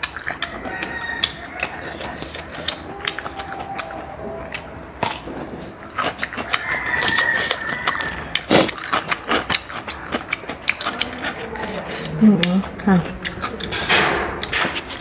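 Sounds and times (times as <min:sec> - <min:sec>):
chewing: 0:00.0 - 0:15.0
rooster crowing: 0:00.4 - 0:05.0, 0:06.1 - 0:08.5.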